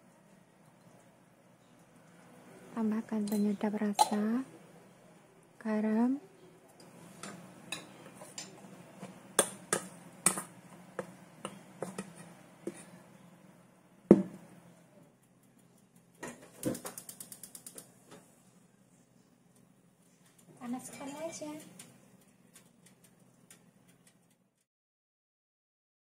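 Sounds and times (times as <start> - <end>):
spoon scraping metal bowl: 6.8 - 9.2.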